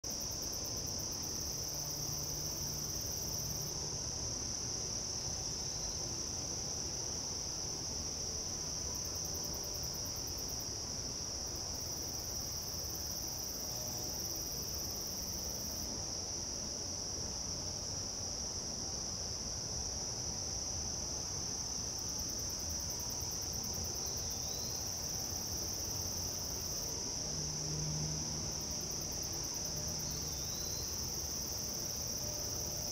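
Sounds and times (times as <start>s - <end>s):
insect trill: 0.1s - 32.9s.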